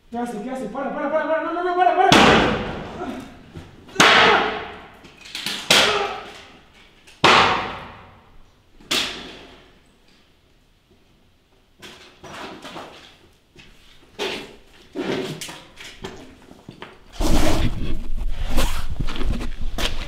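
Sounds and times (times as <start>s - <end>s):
loud echoing bangs: 2.0s - 5.0s, 7.2s - 8.3s.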